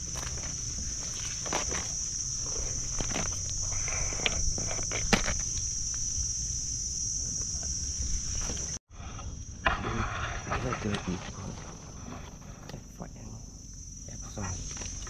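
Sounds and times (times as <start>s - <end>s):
twigs and leaves snapping: 0.0s - 6.1s
footsteps in undergrowth: 0.0s - 6.4s
insects droning: 0.0s - 15.0s.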